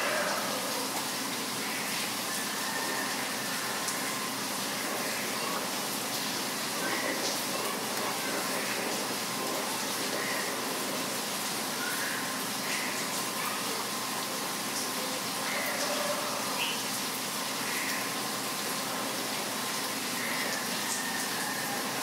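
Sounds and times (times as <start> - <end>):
rain hissing: 0.0 - 22.0
birds chirping: 16.5 - 17.0.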